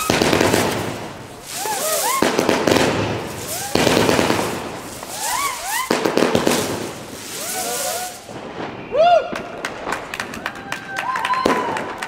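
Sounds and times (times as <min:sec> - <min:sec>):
fireworks hissing rushes: 0:00.0 - 0:09.1
firework whistles: 0:00.0 - 0:09.9.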